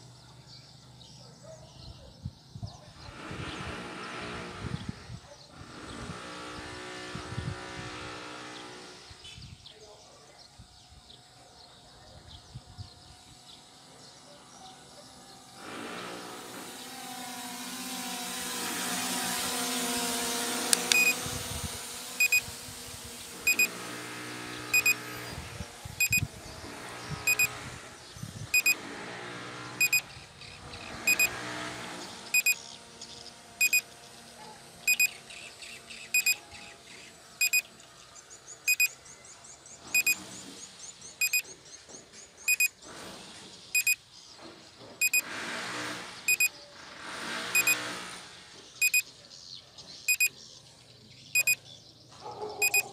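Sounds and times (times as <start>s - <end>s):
high electronic warning beep: 20.9s - 21.2s, 22.2s - 22.4s, 23.5s - 23.7s, 24.7s - 25.0s, 26.0s - 26.3s, 27.2s - 27.5s, 28.5s - 28.8s, 29.8s - 30.0s, 31.0s - 31.3s, 32.3s - 32.6s, 33.6s - 33.8s, 34.9s - 35.1s, 36.2s - 36.4s, 37.4s - 37.6s, 38.7s - 39.0s, 40.0s - 40.2s, 41.2s - 41.4s, 42.5s - 42.8s, 43.8s - 44.0s, 45.0s - 45.2s, 46.3s - 46.5s, 47.6s - 47.8s, 48.8s - 49.1s, 50.1s - 50.3s, 51.4s - 51.6s, 52.6s - 52.8s.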